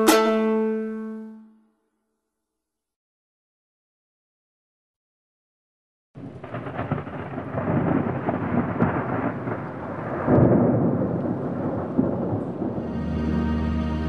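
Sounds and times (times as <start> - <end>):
rumbling thunder: 6.2 - 13.4
rain: 6.2 - 14.0.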